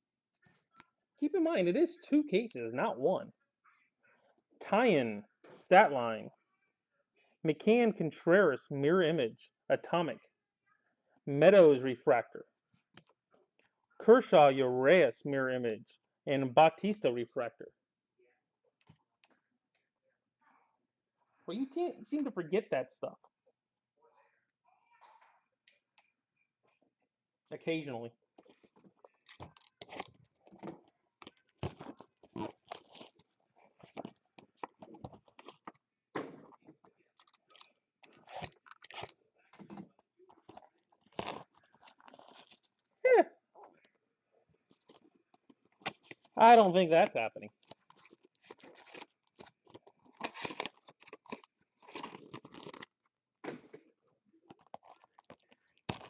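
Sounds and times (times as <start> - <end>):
plastic shrink wrap tearing: 31.5 - 33.3, 40.5 - 42.8, 47.6 - 53.0
foil card packs crinkling: 47.5 - 53.0.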